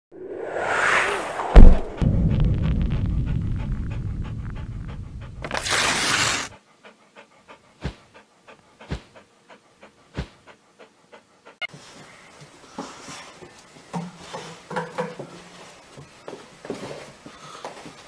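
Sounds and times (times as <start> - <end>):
whoosh: 0.1 - 6.5
hard thump: 1.4 - 4.5
dog panting heavily: 3.0 - 14.7.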